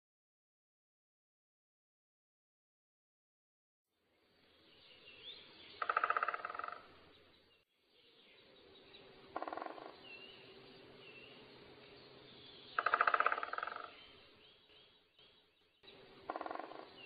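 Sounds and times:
faint small bird chirps: 0:04.0 - 0:17.0
woodpecker drumming: 0:05.7 - 0:07.2, 0:08.7 - 0:17.0.

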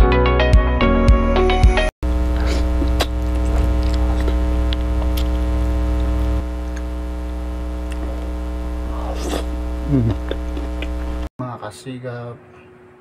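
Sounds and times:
electrical mains hum: 0:02.0 - 0:11.3
rustly mouth sound: 0:02.3 - 0:05.3, 0:08.8 - 0:11.1.

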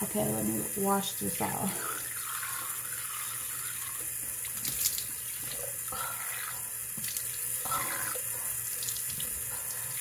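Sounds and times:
tap running into a sink: 0:06.9 - 0:07.4.

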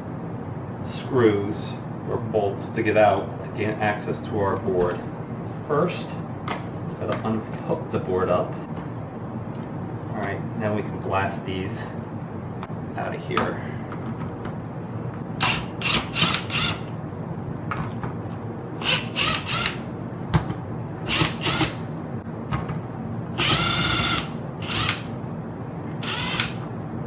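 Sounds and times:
cordless power driver bursts: 0:15.4 - 0:16.8, 0:18.8 - 0:19.8, 0:21.1 - 0:21.8, 0:23.4 - 0:25.1, 0:26.0 - 0:26.6.

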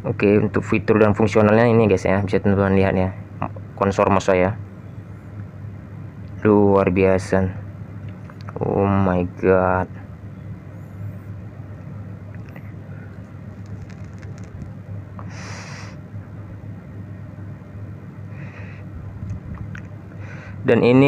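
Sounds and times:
low background hum: 0:00.0 - 0:21.0
short breathy hiss: 0:15.2 - 0:16.0.

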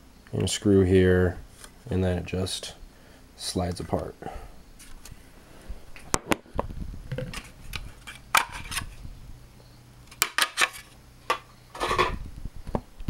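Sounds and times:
clattering rustle: 0:10.1 - 0:12.2
clicks and knocks of hard objects: 0:10.1 - 0:12.2.

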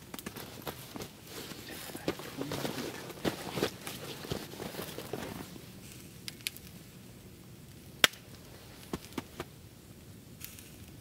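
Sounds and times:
rustling crunching noise: 0:00.0 - 0:06.2
campfire crackling: 0:00.0 - 0:11.0.

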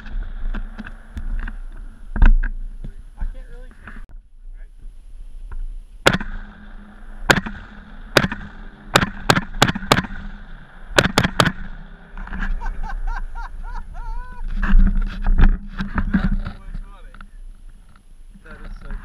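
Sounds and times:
gunshots: 0:06.0 - 0:12.2.

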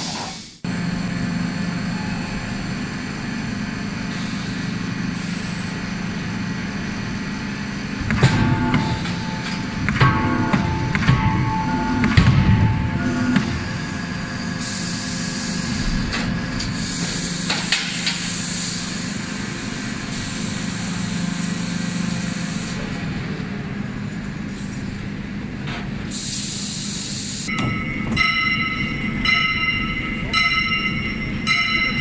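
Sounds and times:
machinery humming: 0:00.0 - 0:32.0
sharp knocks: 0:08.0 - 0:13.7
steady several-toned sound: 0:08.3 - 0:15.8, 0:27.5 - 0:32.0
hydraulic hissing: 0:13.0 - 0:22.8.

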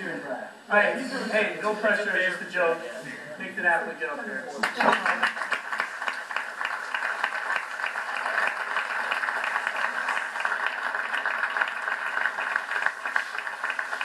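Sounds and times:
audience applauding: 0:04.6 - 0:14.0.

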